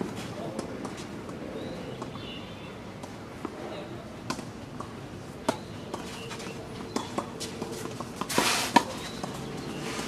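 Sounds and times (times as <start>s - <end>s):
tennis balls bouncing on court: 0.4s - 2.3s, 2.9s - 9.8s
tennis balls struck by rackets: 3.0s - 9.8s
brief scraping rush: 8.3s - 8.8s.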